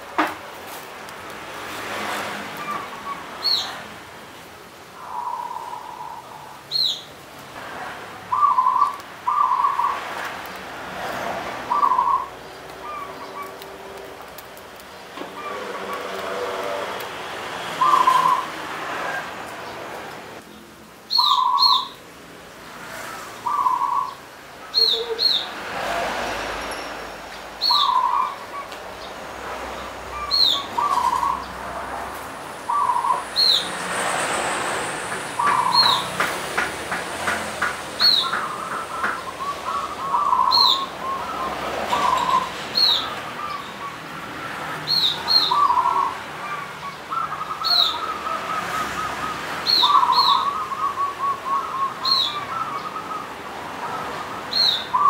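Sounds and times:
dove cooing: 8.3s - 10.0s, 11.7s - 13.6s, 15.2s - 17.0s, 17.8s - 18.5s, 38.1s - 44.2s, 45.0s - 54.0s.

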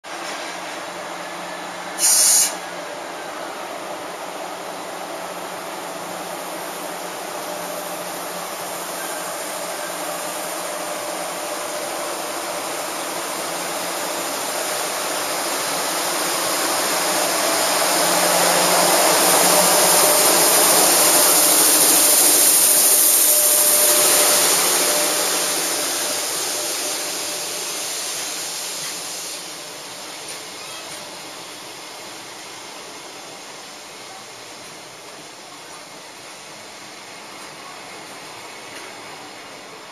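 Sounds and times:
electric locomotive blower rushing: 6.6s - 30.6s.

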